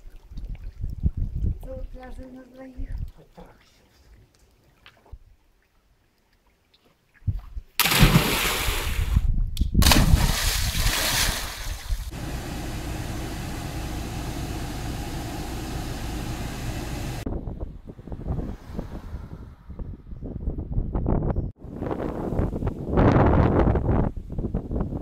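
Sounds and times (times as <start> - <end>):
person plunging into sea: 7.8 - 9.2, 9.8 - 12.1
rushing water: 9.8 - 17.3.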